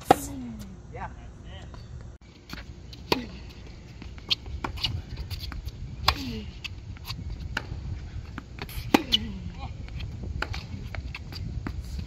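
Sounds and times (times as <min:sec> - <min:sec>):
tennis ball bounces: 0:00.0 - 0:00.7, 0:07.0 - 0:11.8.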